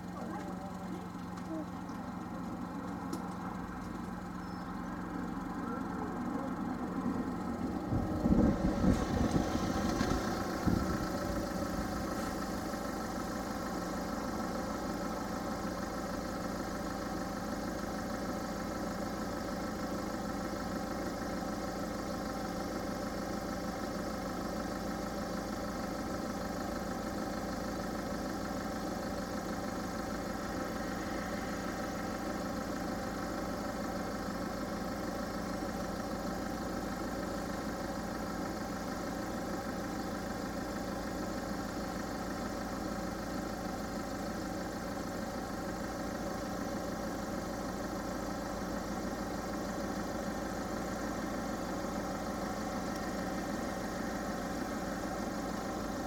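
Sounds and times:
cars idling: 0.0s - 56.0s
low rumbling: 1.7s - 13.0s.

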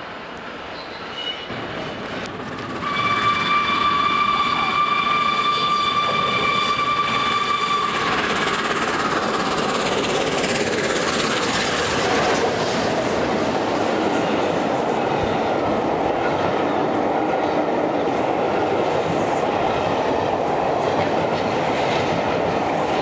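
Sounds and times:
train approaching: 0.0s - 23.0s
steam locomotive whistle: 2.8s - 8.6s.

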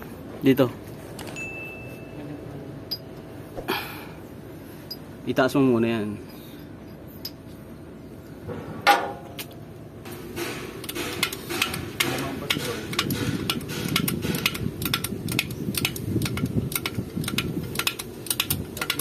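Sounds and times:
steady low rumble: 1.9s - 19.0s
jack pump clicks: 10.8s - 19.0s.

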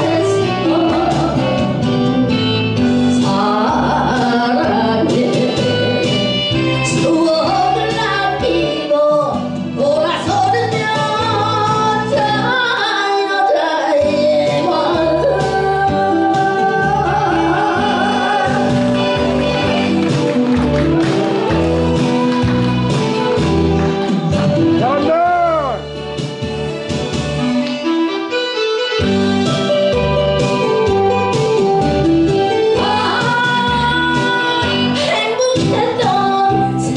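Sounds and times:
woman singing into microphone: 0.0s - 20.0s, 32.6s - 36.9s
backing music with bass line: 0.0s - 36.9s.

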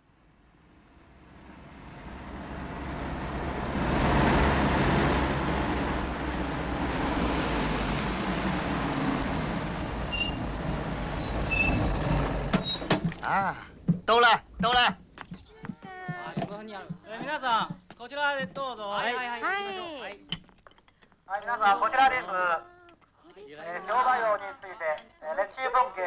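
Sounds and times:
bus engine and tyre noise: 0.0s - 13.3s.

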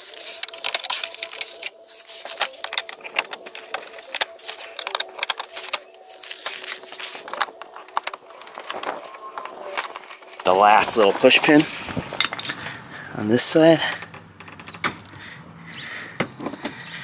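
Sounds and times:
plastic clips clicking and rattling: 0.0s - 12.7s.

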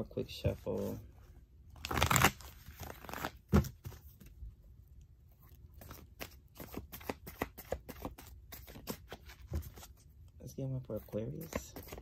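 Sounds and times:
cards being shuffled: 1.8s - 4.4s, 5.7s - 10.1s, 11.0s - 12.0s.

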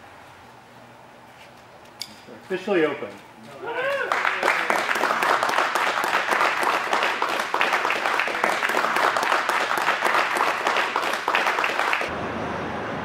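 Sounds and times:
crowd applauding: 3.8s - 12.1s.

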